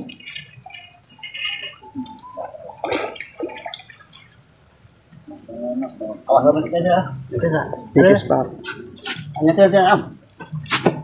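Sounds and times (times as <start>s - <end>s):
fish splashing and thrashing in water: 0.0s - 4.6s.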